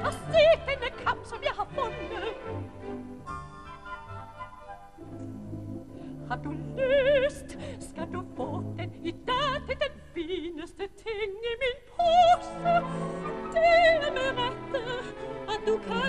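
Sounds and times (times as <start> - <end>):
woman singing opera: 0.0 - 2.7, 6.2 - 16.0
orchestral accompaniment: 0.0 - 9.1.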